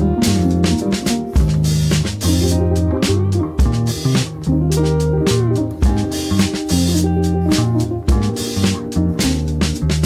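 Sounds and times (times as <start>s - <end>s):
bass guitar: 0.0s - 10.0s
drum beat: 0.0s - 10.0s
guitar: 0.0s - 10.0s.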